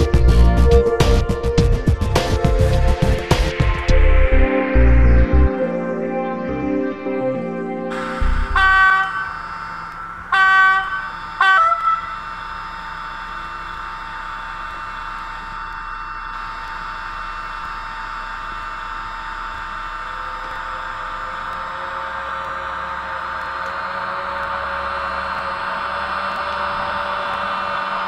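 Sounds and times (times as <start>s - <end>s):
locomotive hiss with low hum: 7.9s - 28.0s
model train horn blasts: 7.9s - 28.0s.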